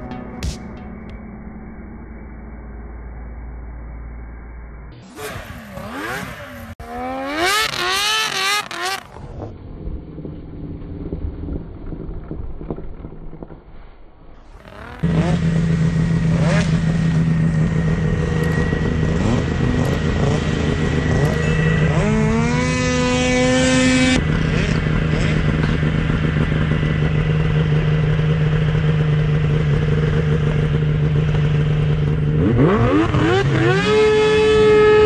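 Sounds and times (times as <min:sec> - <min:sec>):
snowmobile engine revving: 0:05.0 - 0:09.5, 0:14.5 - 0:35.0.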